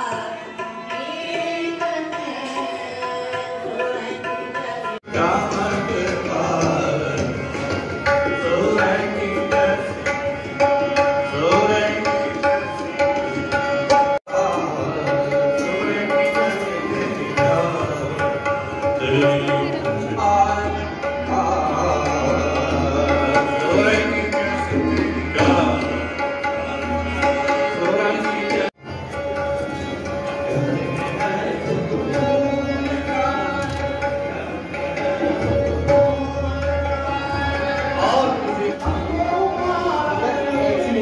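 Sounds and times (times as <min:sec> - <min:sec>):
devotional music: 0:00.0 - 0:41.0
tabla drumming: 0:00.0 - 0:41.0.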